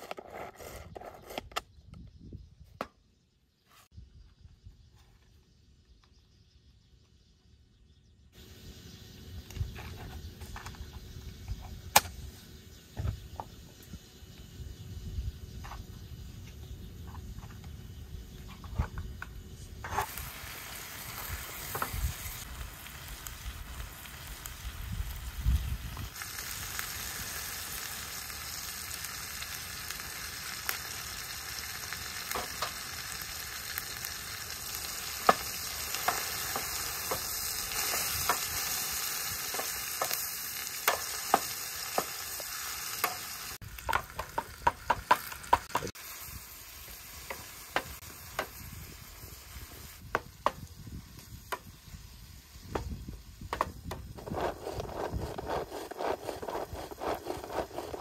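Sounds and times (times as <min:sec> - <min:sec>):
vegetables sizzling in oil: 0:19.4 - 0:55.3
spatula scraping a pan: 0:54.1 - 0:58.0.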